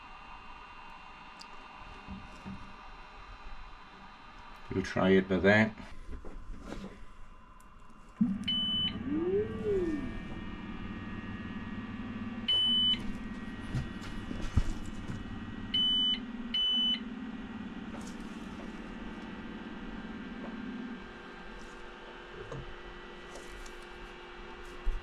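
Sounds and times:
printer motor hum: 8.2 - 25.0.

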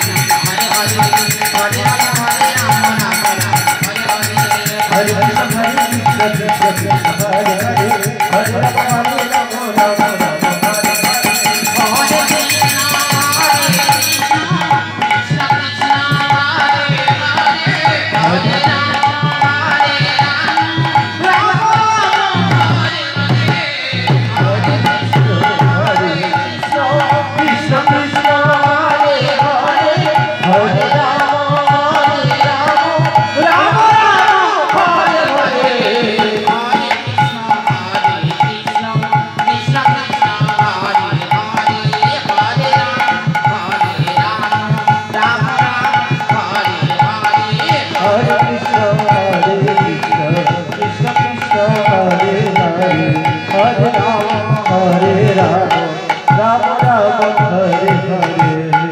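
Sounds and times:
hand-played barrel drum: 0.0 - 58.9.

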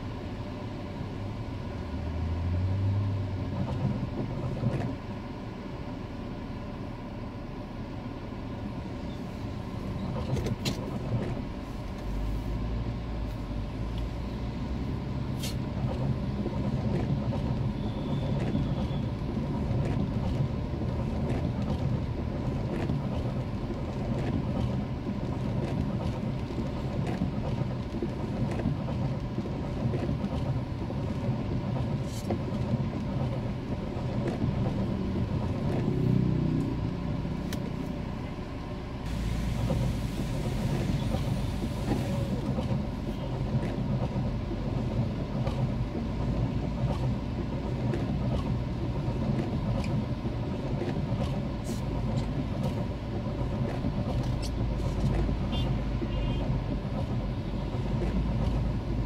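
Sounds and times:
car engine and road rumble: 0.0 - 59.0
rush of hiss: 39.1 - 42.4.

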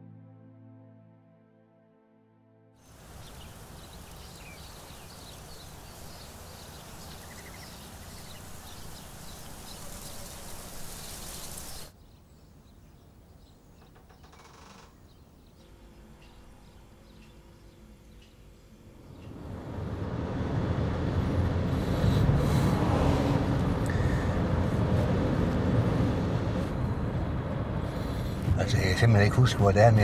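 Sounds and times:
steady background hiss: 2.8 - 14.2
small birds chirping: 2.9 - 19.4.

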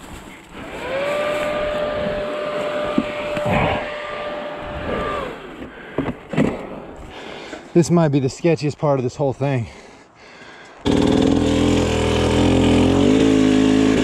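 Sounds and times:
dirt bike engine revving: 0.6 - 5.5, 10.8 - 14.0.

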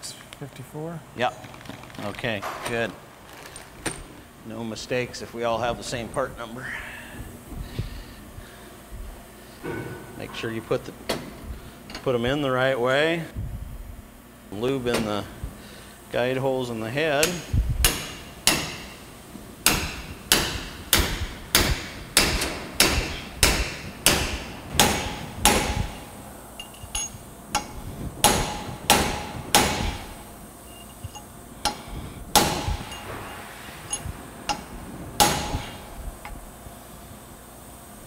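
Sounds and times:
hammer striking metal: 17.2 - 19.0, 19.6 - 30.1, 33.9 - 35.8.

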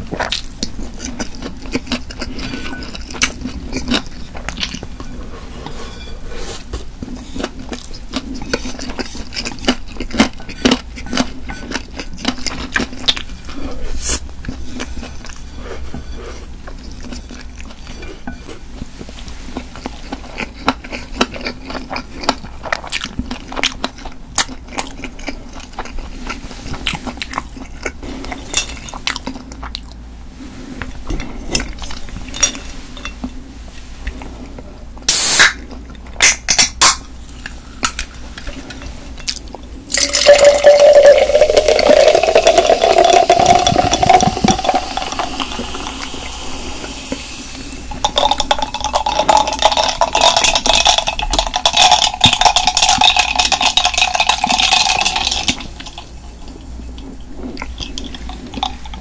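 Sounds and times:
crunchy chewing: 0.0 - 30.0.

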